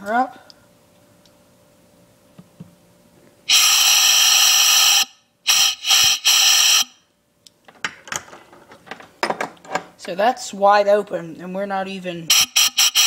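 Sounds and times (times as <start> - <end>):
compressed air hissing from valve: 3.5 - 7.0, 12.3 - 13.0.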